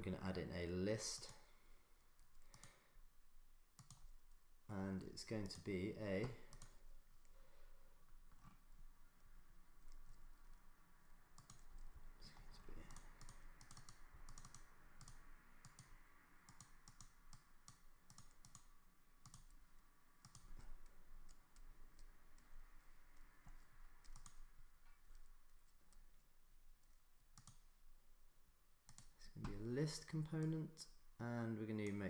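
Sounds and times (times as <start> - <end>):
faint room noise: 0.0 - 32.0
computer mouse and keys clicking: 1.1 - 2.8, 3.7 - 7.4, 8.0 - 27.8, 28.8 - 31.0, 31.7 - 32.0.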